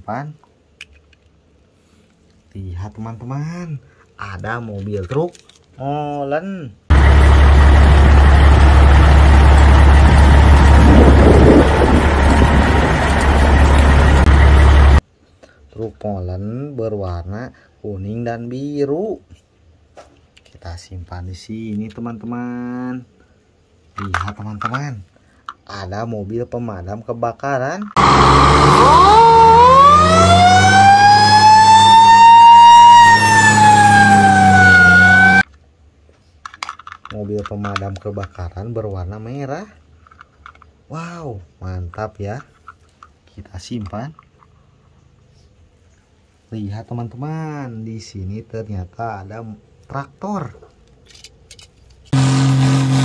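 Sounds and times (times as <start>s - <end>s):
truck engine rumbling: 6.9s - 15.0s, 28.0s - 35.4s.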